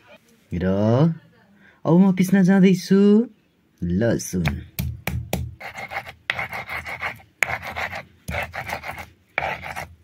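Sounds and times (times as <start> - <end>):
stone grinding on stone: 5.6 - 10.0.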